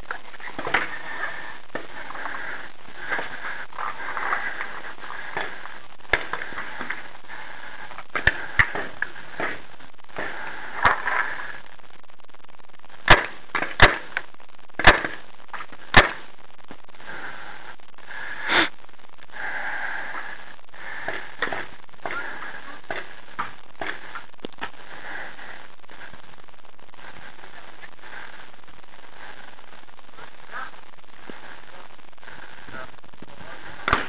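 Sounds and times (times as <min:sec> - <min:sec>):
paintball marker shots: 0:13.0 - 0:14.1, 0:15.9 - 0:16.2.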